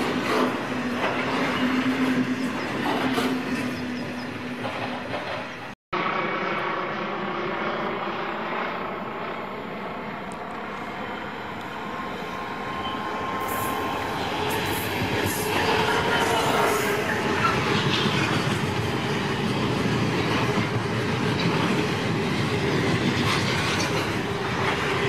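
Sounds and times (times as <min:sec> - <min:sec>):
diesel locomotive engine: 0:00.0 - 0:05.8, 0:07.5 - 0:25.0
freight wagons rolling on rails: 0:00.0 - 0:05.8, 0:12.8 - 0:25.0.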